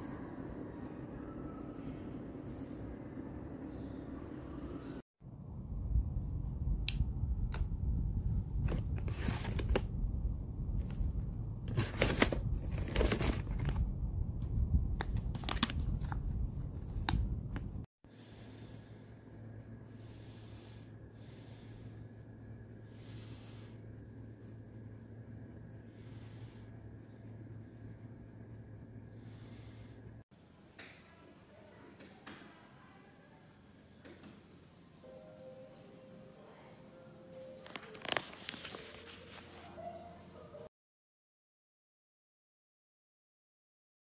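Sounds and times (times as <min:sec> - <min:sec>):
low steady hum: 0:00.0 - 0:31.9
plastic packaging crinkling: 0:37.6 - 0:39.8.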